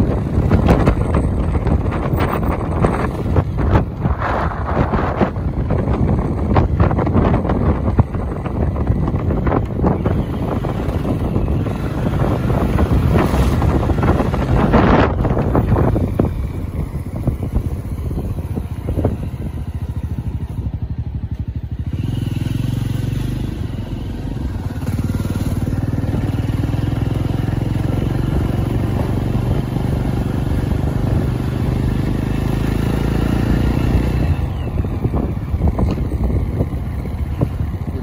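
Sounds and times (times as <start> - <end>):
vehicle engine and road noise: 0.0 - 38.0.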